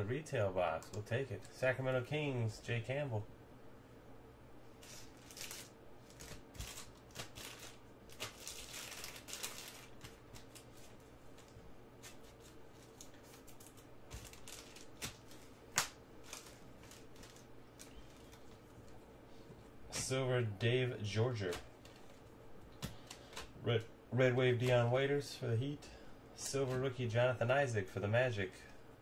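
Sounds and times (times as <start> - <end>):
faint steady hum: 0.0 - 29.0
trading cards swishing and clicking: 4.8 - 19.0.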